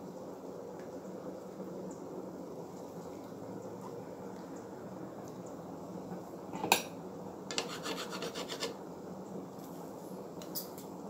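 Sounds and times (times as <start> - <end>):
metal spoon scraping a pan: 7.5 - 8.8.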